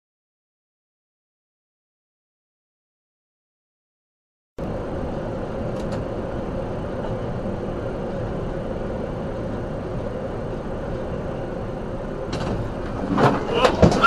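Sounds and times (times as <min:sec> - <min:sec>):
vehicle road and engine noise: 0:04.6 - 0:14.0.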